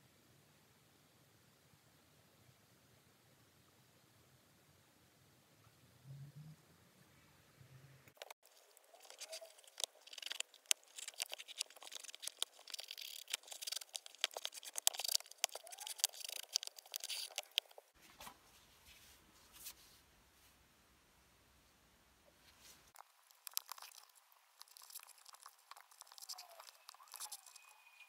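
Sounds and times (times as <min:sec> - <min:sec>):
lace scraping through eyelets: 0:08.2 - 0:17.9, 0:22.9 - 0:27.9
plastic gloves crinkling: 0:08.2 - 0:19.8, 0:22.5 - 0:27.7.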